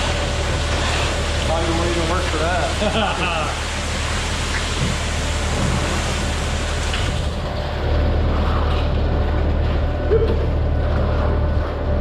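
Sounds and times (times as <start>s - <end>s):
diesel truck engine drone: 0.0s - 12.0s.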